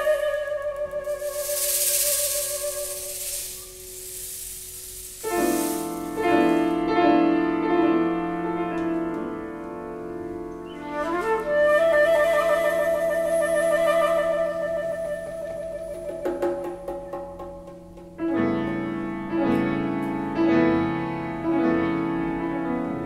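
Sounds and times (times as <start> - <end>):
flute playing: 0.0 - 3.9, 10.6 - 16.3
piano chords: 0.0 - 23.0
shaker rattling: 0.9 - 6.9.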